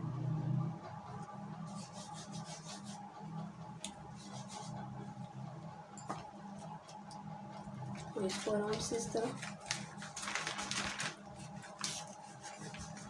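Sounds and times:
steady low hum: 0.0 - 13.0
hands rubbing flour on pastry: 1.6 - 5.2, 11.3 - 13.0
plastic bag rustling: 8.2 - 13.0.

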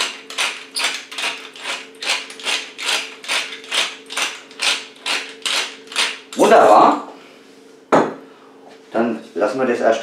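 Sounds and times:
pepper mill grinding peppercorns: 0.0 - 6.7.

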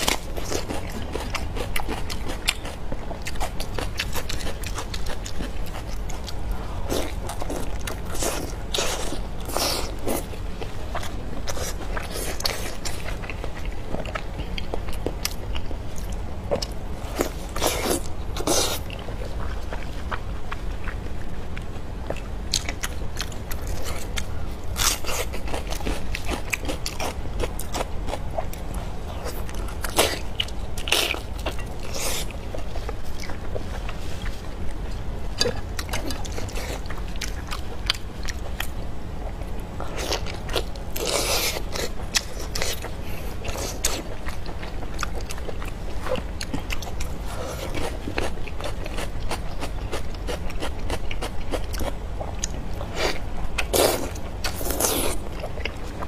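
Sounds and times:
chewing with mouth clicks: 0.0 - 56.0
steady low hum: 0.0 - 56.0.

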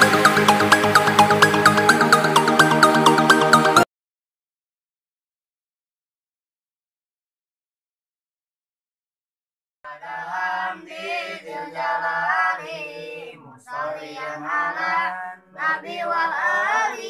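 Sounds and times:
boys chanting in unison: 9.9 - 17.0.

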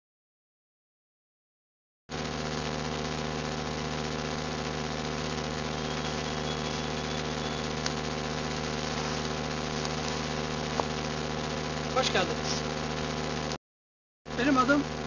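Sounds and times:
low mechanical hum: 2.1 - 13.6, 14.3 - 15.0
faint high whistle: 5.7 - 7.8.

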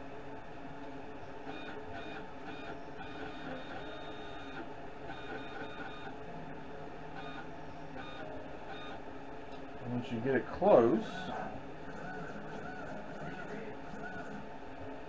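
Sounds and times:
stepper motors whining: 10.8 - 14.4.

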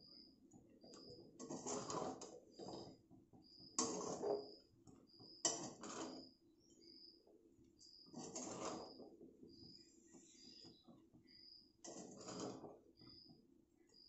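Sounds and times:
spatula scraping metal pan: 0.9 - 3.0, 3.6 - 6.4, 8.0 - 9.2, 11.8 - 12.8.

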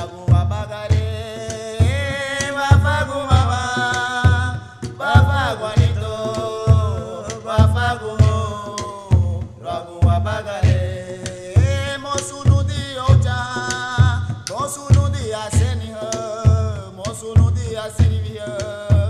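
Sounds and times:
steady drum beat: 0.0 - 19.0
person singing: 1.4 - 13.8.

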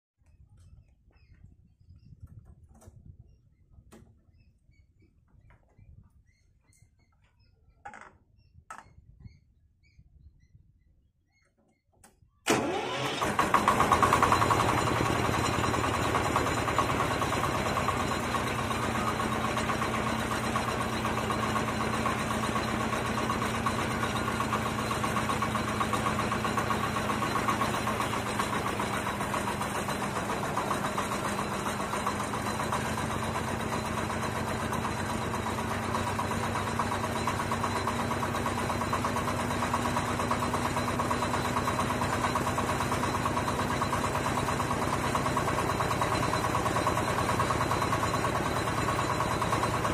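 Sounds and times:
harvester engine starting and idling: 12.1 - 49.9.

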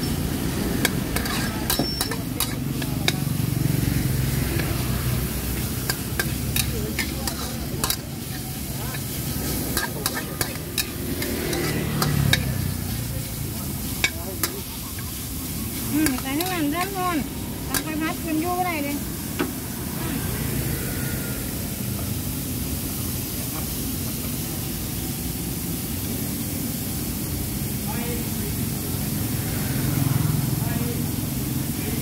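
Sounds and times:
utensil clanking against wok: 0.0 - 18.4
food sizzling in a wok: 0.0 - 32.0.

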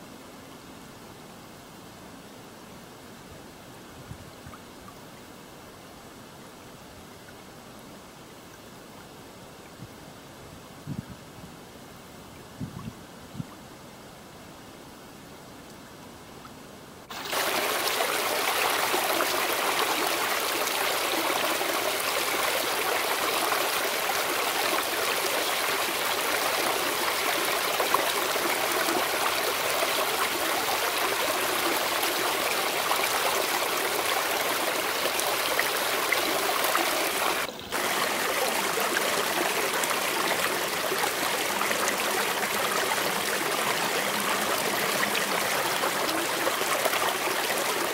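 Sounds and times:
creek flowing over rocks: 17.0 - 47.9.

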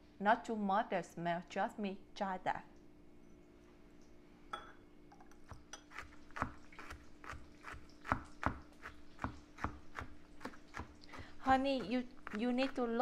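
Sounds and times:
faint steady hum: 0.0 - 13.0
knife chopping on cutting board: 5.9 - 13.0.

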